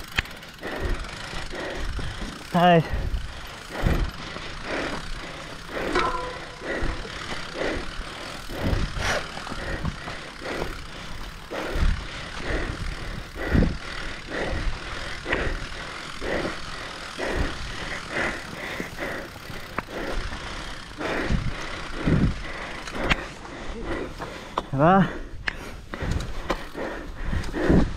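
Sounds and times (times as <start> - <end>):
bike rattling and knocking: 0.0 - 27.9.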